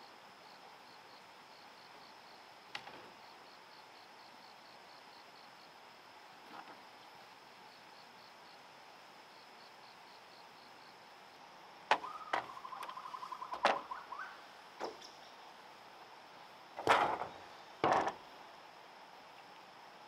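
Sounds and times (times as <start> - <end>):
faint insect drone: 0.0 - 20.0
bamboo poles knocking together: 11.9 - 13.9, 16.8 - 18.2.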